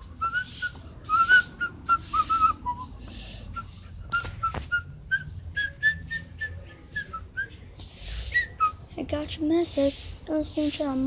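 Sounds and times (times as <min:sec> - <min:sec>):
person whistling short notes: 0:00.2 - 0:07.5.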